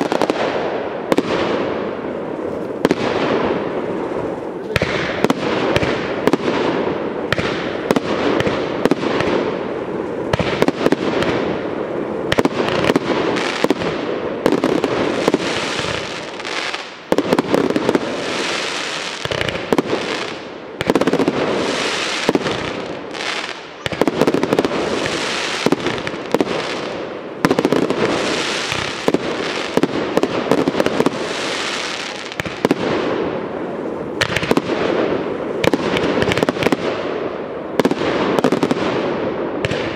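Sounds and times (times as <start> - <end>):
fireworks crackling: 0.0 - 39.9.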